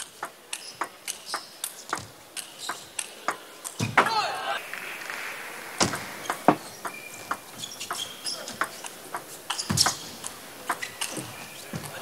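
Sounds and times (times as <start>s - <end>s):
shoes squeaking on floor: 0.0s - 4.0s, 5.8s - 12.0s
table tennis ball hits: 5.8s - 11.2s.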